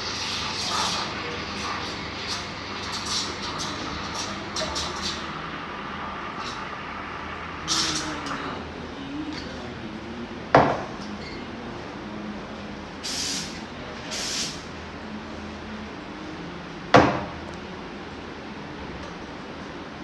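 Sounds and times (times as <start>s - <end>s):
steam wand hissing: 0.0s - 8.4s.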